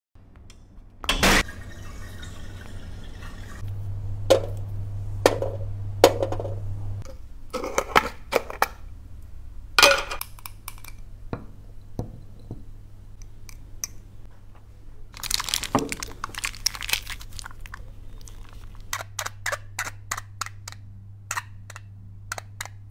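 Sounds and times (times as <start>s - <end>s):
steady low hum: 0.2s - 15.2s.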